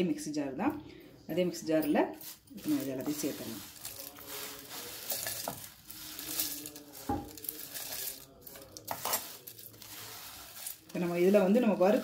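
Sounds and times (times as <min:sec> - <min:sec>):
dry ingredients rustling and scraping: 0:02.0 - 0:12.0
lentils clicking on metal: 0:02.6 - 0:12.0.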